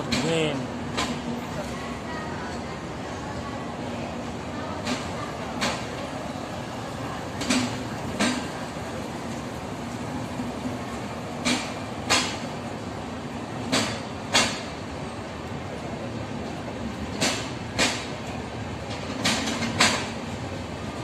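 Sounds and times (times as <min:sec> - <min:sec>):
train coaches rumbling past: 0:00.0 - 0:21.0
wheels clacking over rail joint: 0:04.8 - 0:06.2, 0:07.3 - 0:08.7, 0:10.6 - 0:12.6, 0:13.6 - 0:14.8, 0:17.0 - 0:20.4.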